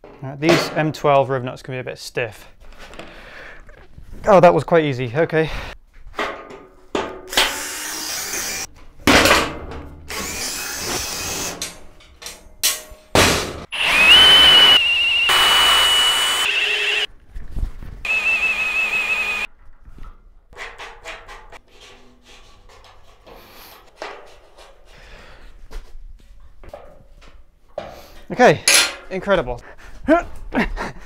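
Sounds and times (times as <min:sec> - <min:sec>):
cordless drill whining: 0:13.7 - 0:17.1, 0:18.1 - 0:19.5.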